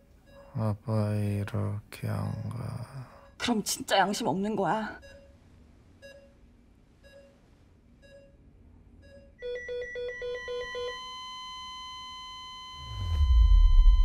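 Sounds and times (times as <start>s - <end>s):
patient monitor beeping: 0.0s - 1.5s, 4.8s - 5.4s, 6.0s - 14.0s
rapid alarm beeping: 5.0s - 5.3s
steady flatline tone: 9.5s - 14.0s.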